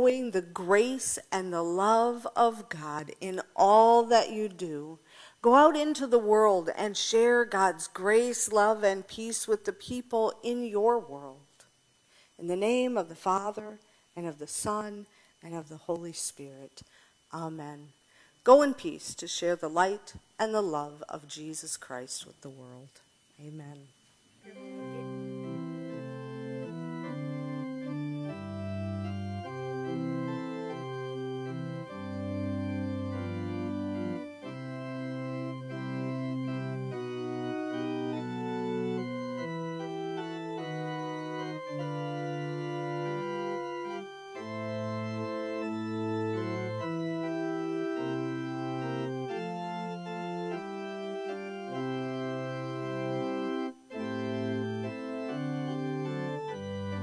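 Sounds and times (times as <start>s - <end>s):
organ playing held chords: 24.4s - 57.0s.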